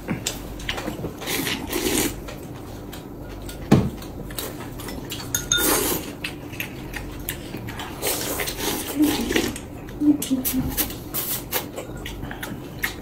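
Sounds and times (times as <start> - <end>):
utensils clinking on ceramic bowls: 4.9 - 6.1.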